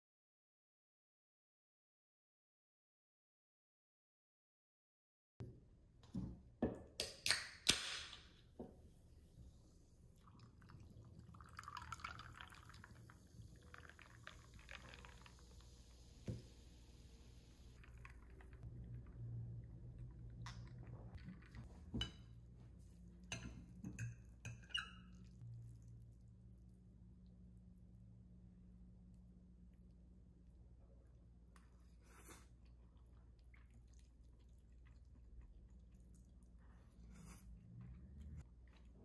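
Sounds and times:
liquid being poured: 10.0s - 18.8s.

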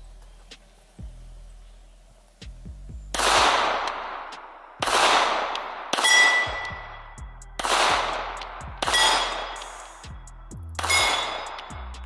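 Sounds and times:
pistol shots with echo: 3.1s - 6.9s, 7.6s - 9.8s, 10.8s - 11.7s
short metallic ring: 8.9s - 9.6s, 10.8s - 11.8s.

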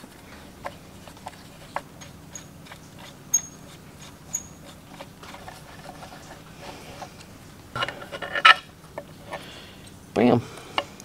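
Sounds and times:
metal parts clicking and tinking: 1.9s - 4.8s.

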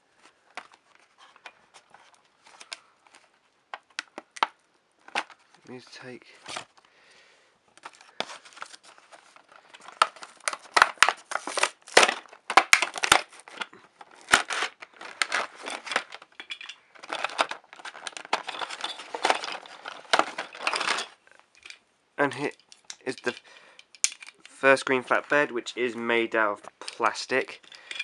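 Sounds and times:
plastic packaging crinkling: 7.8s - 21.8s.

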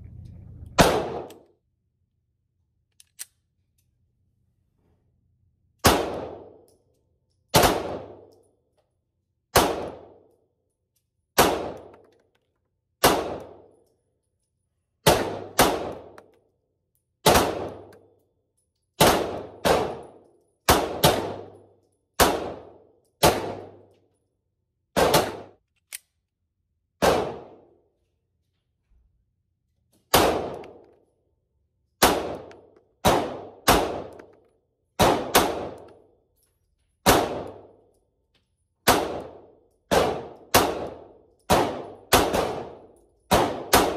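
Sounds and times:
pistol shots: 0.8s - 1.4s, 5.8s - 6.6s, 7.5s - 8.3s, 9.5s - 10.2s, 11.4s - 12.0s, 13.0s - 13.7s, 15.0s - 16.3s, 17.2s - 18.0s, 19.0s - 21.6s, 22.2s - 23.8s, 25.0s - 25.6s, 27.0s - 27.6s, 30.1s - 30.8s, 32.0s - 34.3s, 35.0s - 36.0s, 37.0s - 37.7s, 38.8s - 43.9s.

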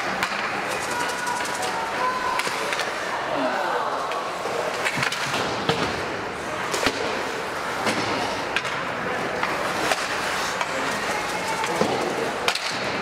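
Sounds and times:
hockey sticks and puck clacking: 0.0s - 3.1s, 4.1s - 13.0s
murmur of spectators: 0.0s - 13.0s
skate blades scraping ice: 9.1s - 12.6s.

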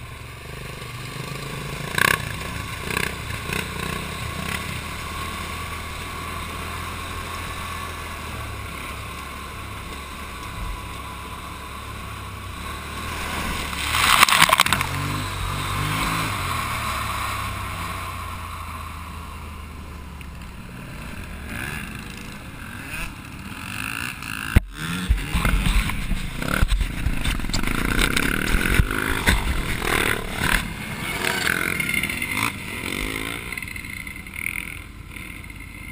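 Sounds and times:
quad bike engine running: 0.0s - 35.9s
rattling over rough ground: 7.6s - 15.2s, 20.2s - 35.9s
splash through puddle: 13.5s - 15.0s.

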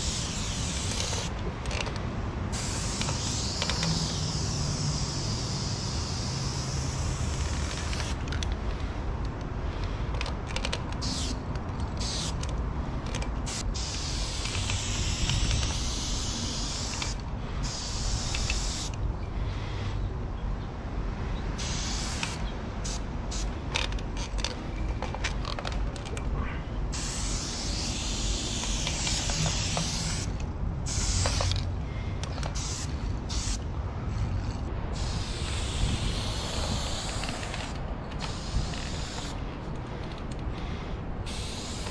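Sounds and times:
spray-paint can hissing: 0.0s - 1.3s, 2.5s - 8.2s, 11.0s - 11.4s, 12.0s - 12.4s, 13.4s - 18.9s, 21.6s - 23.5s, 26.9s - 30.3s, 30.9s - 31.5s, 32.5s - 33.6s, 34.4s - 39.4s, 41.2s - 41.9s
steady low rumble: 0.0s - 41.9s.

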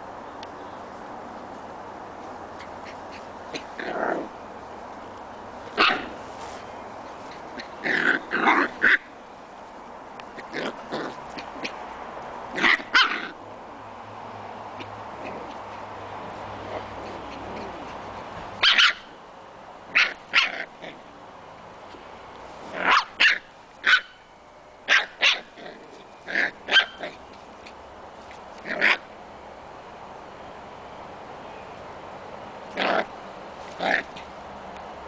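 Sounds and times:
puppies yapping: 16.8s - 19.1s, 26.3s - 27.7s.

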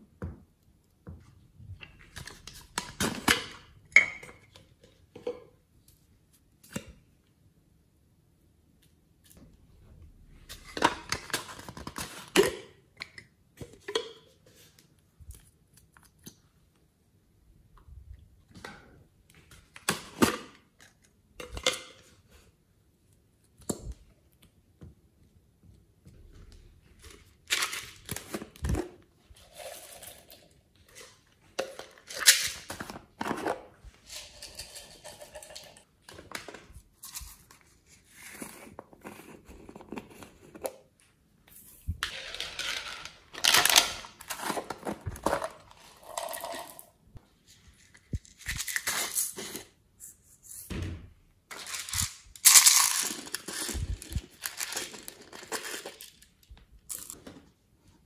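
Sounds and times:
plastic containers scraping and clicking: 27.0s - 37.4s, 41.9s - 46.8s.

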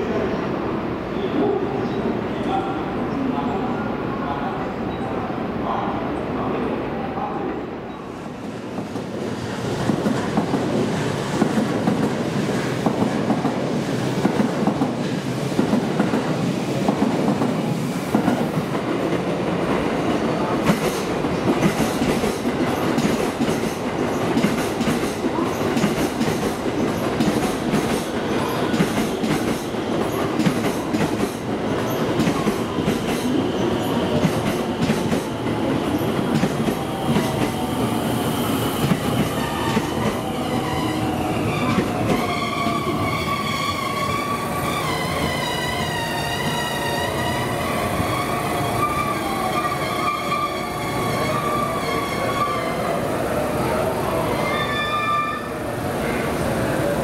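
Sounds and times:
train wheels rumbling on rails: 8.5s - 52.6s.

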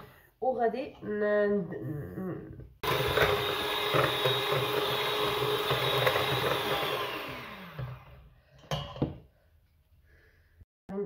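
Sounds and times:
electric hand mixer whisking: 2.8s - 8.3s
mixer motor winding down: 2.8s - 8.3s.

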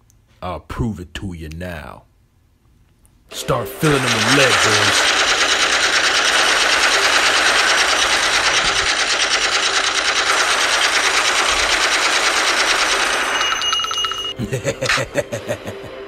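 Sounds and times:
submachine gun fire: 3.8s - 14.3s.

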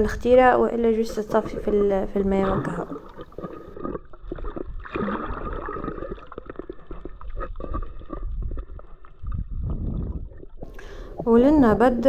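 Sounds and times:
water gurgling and sloshing: 0.0s - 12.0s
low rumble: 7.6s - 11.9s.

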